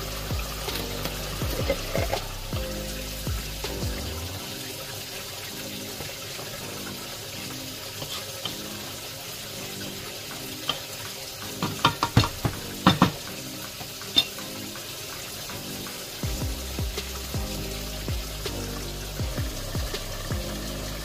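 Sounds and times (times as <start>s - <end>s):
wet sizzle: 0.0s - 21.0s
utensil knocking against pot: 11.6s - 13.2s.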